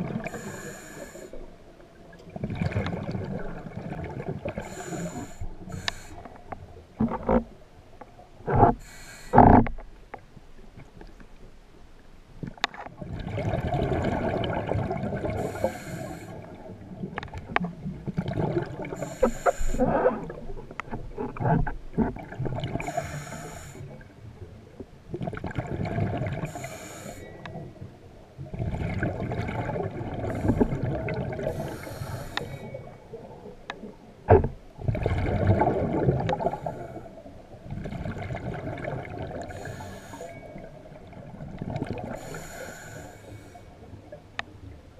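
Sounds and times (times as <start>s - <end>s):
exhaled bubbles gurgling underwater: 0.0s - 9.9s, 12.4s - 44.9s
regulator hissing breaths: 0.3s - 1.4s, 4.6s - 6.4s, 8.8s - 9.6s, 15.4s - 16.5s, 18.9s - 19.9s, 22.8s - 23.9s, 26.5s - 27.4s, 31.5s - 32.8s, 39.5s - 40.6s, 42.1s - 43.8s.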